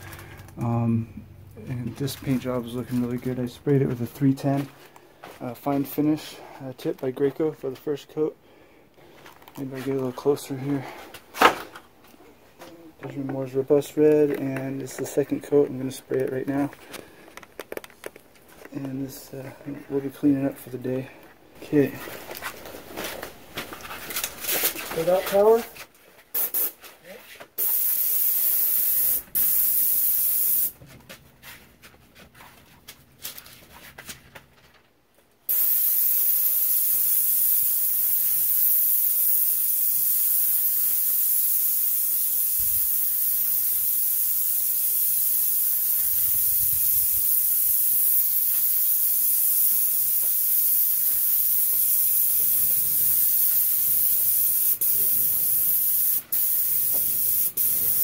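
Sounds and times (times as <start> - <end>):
paint spray gun hissing: 26.4 - 26.8, 27.6 - 30.8, 35.5 - 58.0.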